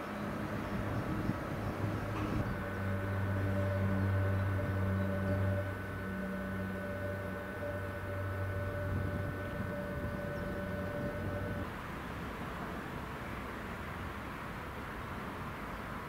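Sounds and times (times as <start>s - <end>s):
machine hum: 0.0s - 11.8s
rushing noise: 0.0s - 11.8s.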